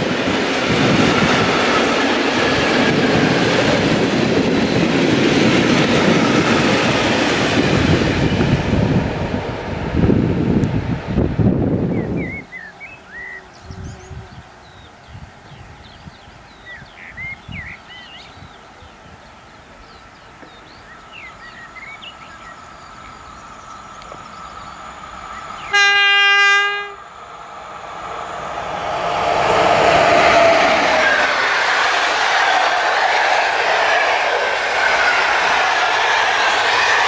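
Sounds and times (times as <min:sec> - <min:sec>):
train rumbling on rails: 0:00.0 - 0:37.0
train horn blast: 0:25.7 - 0:27.1.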